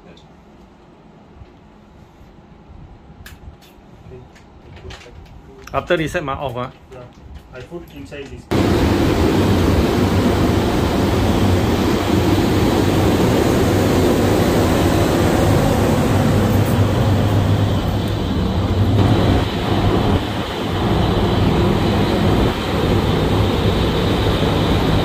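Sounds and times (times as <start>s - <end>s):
ventilation fans rushing air: 0.0s - 25.0s
low hum: 8.5s - 25.0s.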